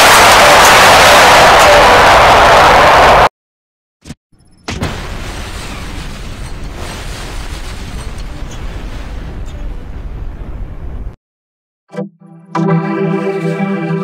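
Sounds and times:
explosion blast: 0.0 - 3.3.

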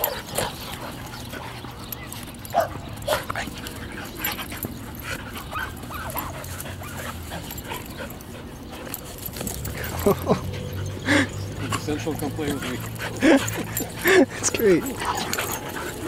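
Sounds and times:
dogs yipping and whimpering: 0.0 - 16.0.

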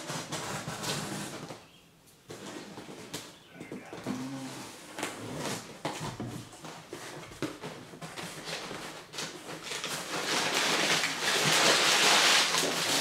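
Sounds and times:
packing paper crinkling: 6.9 - 13.0.

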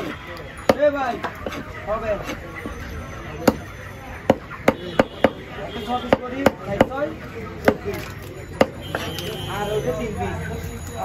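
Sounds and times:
knife chopping on wooden block: 8.6 - 9.2.

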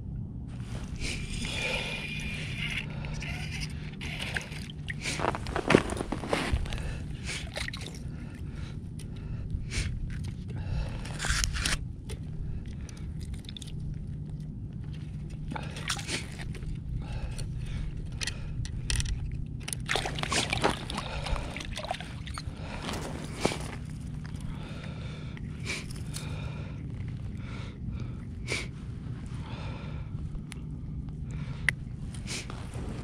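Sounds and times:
steady low rumble: 0.0 - 33.0
clothing rustling: 5.1 - 7.0, 22.4 - 24.5, 32.1 - 33.0.

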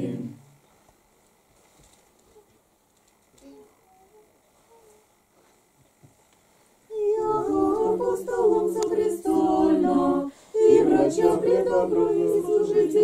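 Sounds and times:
choir chanting unaccompanied: 0.0 - 0.4, 6.9 - 13.0.

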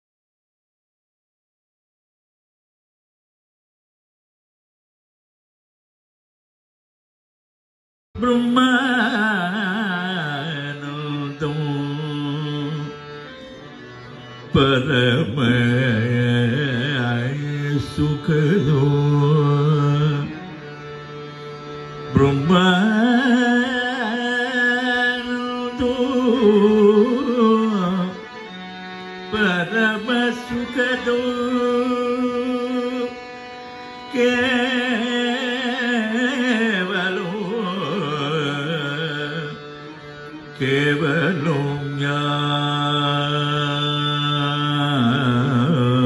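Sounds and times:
man singing ornamented vocal: 8.2 - 13.1, 14.5 - 20.6, 22.0 - 46.0
harmonium held notes: 8.2 - 46.0.

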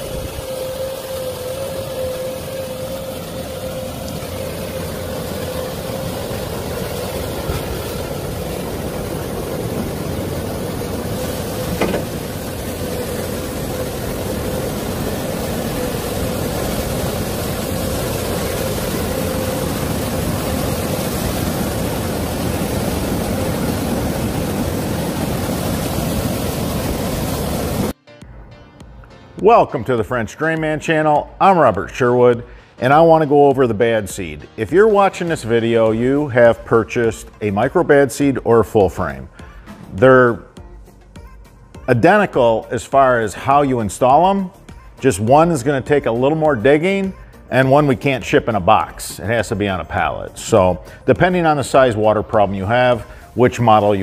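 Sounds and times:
excavator diesel engine running: 0.0 - 27.9
steady whine: 0.0 - 41.0.

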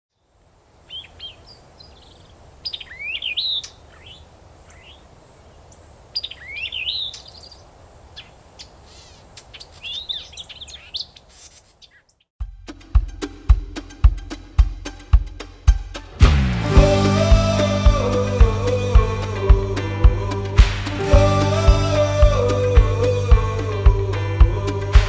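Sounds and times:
songbird warbling whistled notes: 0.9 - 5.0, 6.2 - 7.6, 8.2 - 12.3
bird chirps: 0.9 - 12.3.

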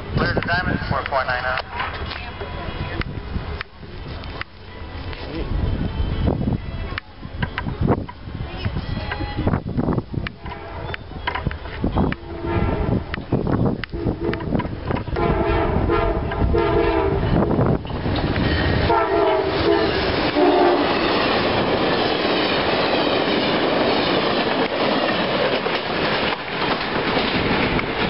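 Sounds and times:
train horn blasts: 10.3 - 11.0, 12.0 - 13.2, 13.9 - 17.5, 18.8 - 21.0
train wheels clattering over rails: 16.2 - 28.0.

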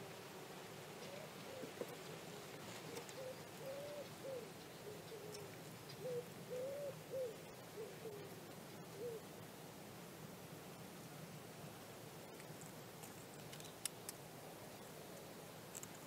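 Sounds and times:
pigeon cooing: 0.9 - 9.3.

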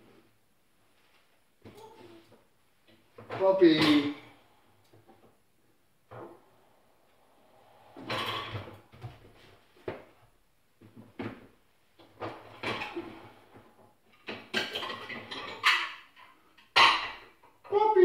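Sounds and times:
dishes clinking: 14.2 - 17.4.

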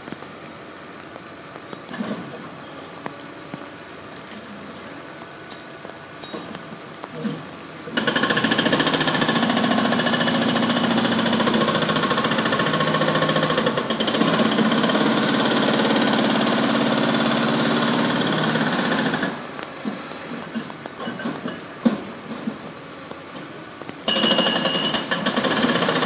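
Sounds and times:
demolition machinery hammering: 8.0 - 19.4.

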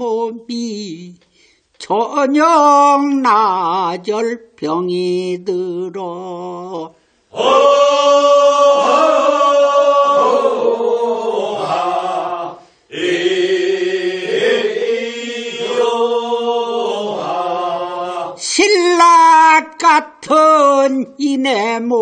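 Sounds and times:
group of voices singing: 6.5 - 19.2.

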